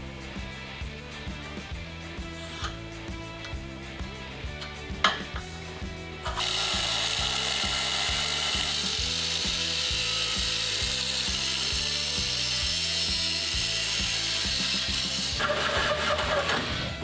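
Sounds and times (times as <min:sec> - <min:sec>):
background music with steady beat: 0:00.0 - 0:17.0
angle grinder grinding steel: 0:06.2 - 0:16.8.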